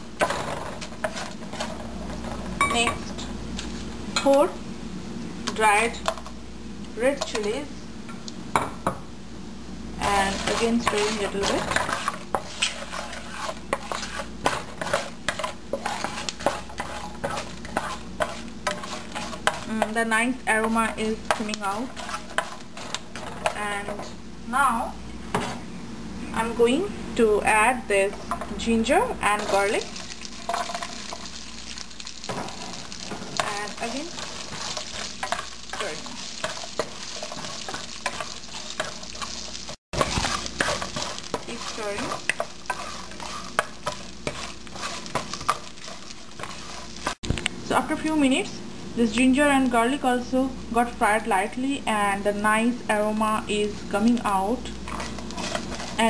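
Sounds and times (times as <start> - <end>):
oil sizzling: 0.0 - 25.4, 26.0 - 51.5, 53.0 - 56.0
wooden spatula scraping frying pan: 0.2 - 2.6, 10.0 - 24.2, 28.4 - 47.2, 54.8 - 56.0.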